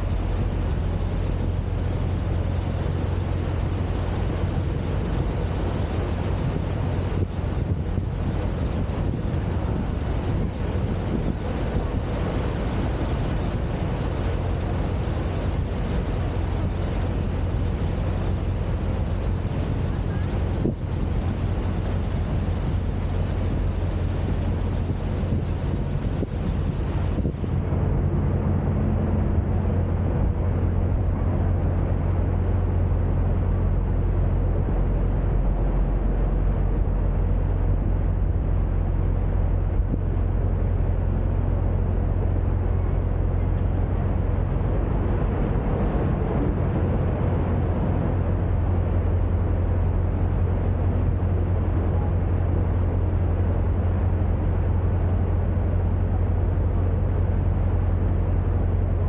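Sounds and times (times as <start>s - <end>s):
wind noise: 0.0s - 32.5s
boat engine running: 0.0s - 59.0s.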